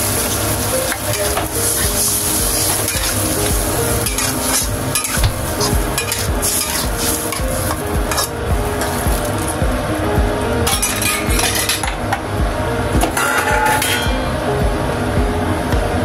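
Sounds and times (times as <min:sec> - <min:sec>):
spatula scraping a wok: 0:00.0 - 0:09.5
sauce sizzling: 0:00.0 - 0:13.3.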